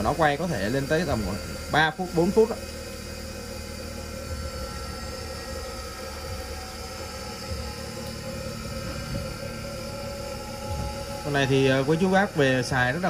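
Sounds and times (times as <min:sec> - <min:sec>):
bench grinder coasting hum: 0:00.0 - 0:13.0.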